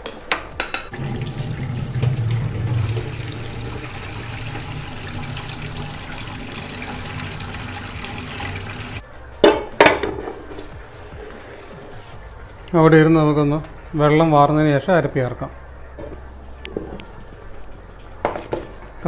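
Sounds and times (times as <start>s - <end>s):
water pouring into metal sink: 0.9s - 9.0s.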